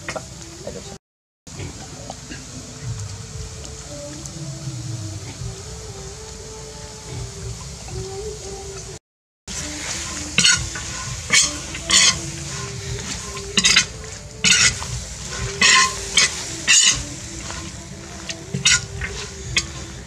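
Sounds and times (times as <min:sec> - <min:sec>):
metal spatula scraping wok: 0:09.5 - 0:20.0
sizzle of frying: 0:09.5 - 0:20.0.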